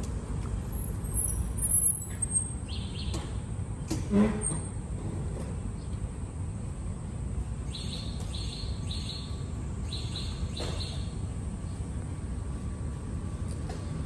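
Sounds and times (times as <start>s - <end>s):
bird chirping: 7.7s - 11.1s.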